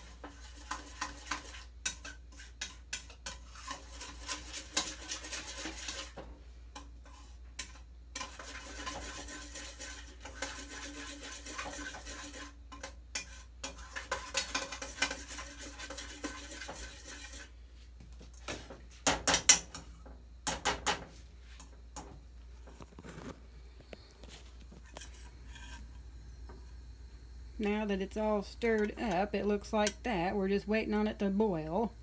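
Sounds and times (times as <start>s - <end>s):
spoon scraping around pot: 0.0s - 17.6s, 19.3s - 26.0s.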